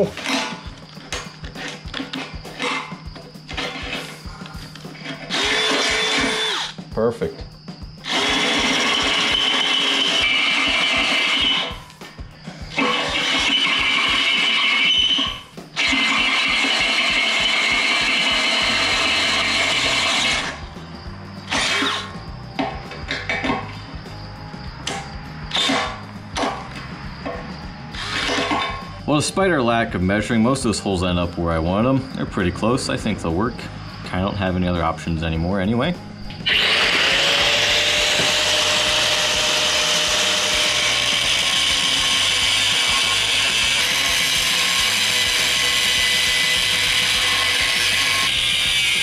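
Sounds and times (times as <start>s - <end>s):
background music: 0.0s - 49.0s
angle grinder grinding steel: 4.9s - 6.8s, 8.0s - 11.9s, 12.7s - 20.7s, 21.5s - 22.2s, 27.9s - 28.9s, 36.4s - 49.0s
drill boring into metal: 5.2s - 6.8s, 8.0s - 11.8s, 12.7s - 20.6s, 21.5s - 22.1s, 25.5s - 25.9s, 28.0s - 28.7s, 36.4s - 49.0s.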